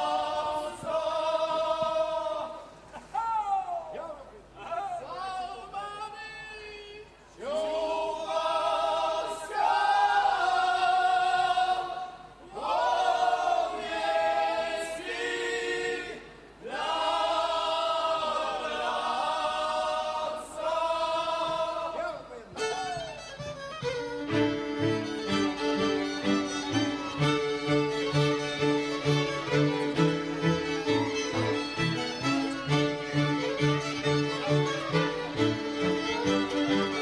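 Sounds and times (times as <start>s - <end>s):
fiddles playing: 22.6s - 37.0s.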